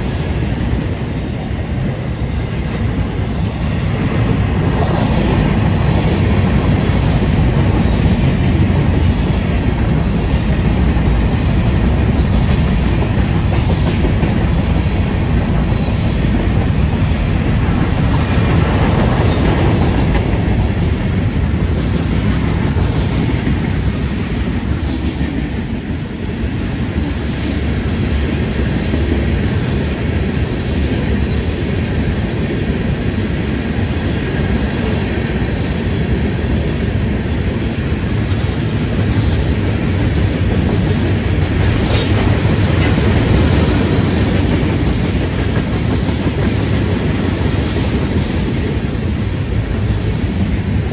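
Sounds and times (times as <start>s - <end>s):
freight train wheels rumbling: 0.0s - 50.9s
clattering over the track: 2.8s - 25.6s, 38.0s - 50.9s.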